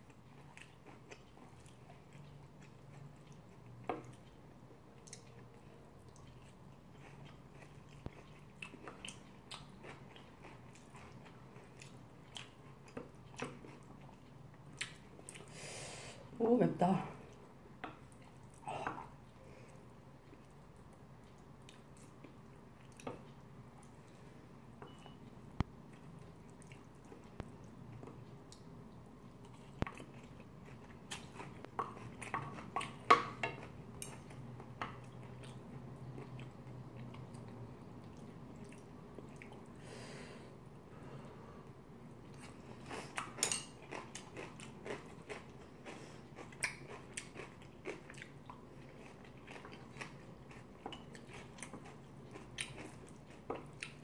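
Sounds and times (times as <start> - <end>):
chewing with small crunches: 0.0 - 15.6, 17.2 - 39.8, 42.1 - 54.0.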